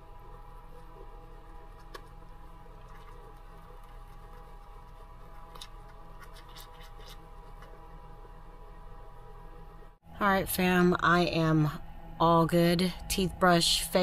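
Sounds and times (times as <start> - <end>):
steady hum: 0.0 - 14.0
toothbrush scrubbing teeth: 0.6 - 7.8.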